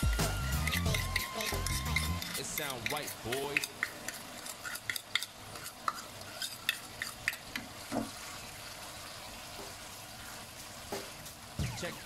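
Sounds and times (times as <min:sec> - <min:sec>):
faint steady sizzle: 0:00.0 - 0:12.0
wooden spatula scraping wok: 0:00.6 - 0:07.6.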